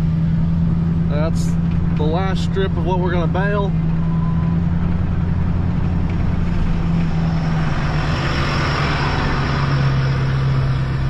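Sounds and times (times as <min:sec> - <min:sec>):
road and wind noise: 0:00.0 - 0:11.0
vehicle engine running: 0:00.0 - 0:11.0.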